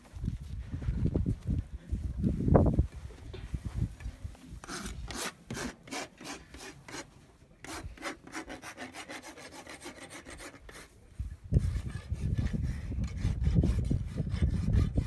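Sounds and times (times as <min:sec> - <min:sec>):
rasp filing a hoof: 0:04.6 - 0:15.0.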